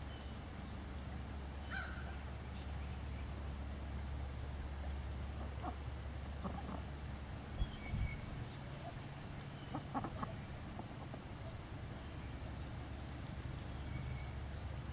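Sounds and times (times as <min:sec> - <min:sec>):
low steady rumble: 0:00.0 - 0:14.9
ducks quacking: 0:05.3 - 0:07.1, 0:08.8 - 0:11.7.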